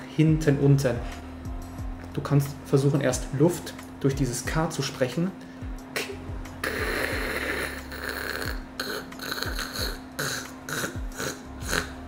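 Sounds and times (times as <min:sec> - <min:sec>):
man making rasping throat sound: 0:06.0 - 0:12.0.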